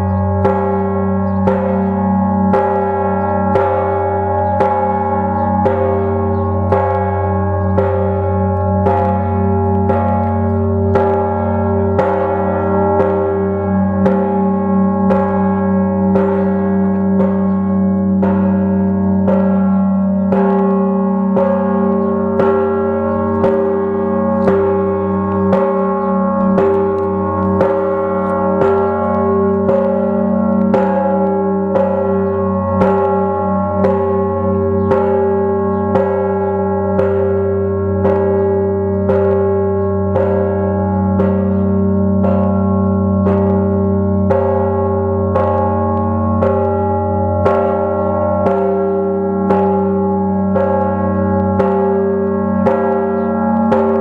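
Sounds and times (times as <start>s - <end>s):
large church bells ringing: 0.0s - 54.0s.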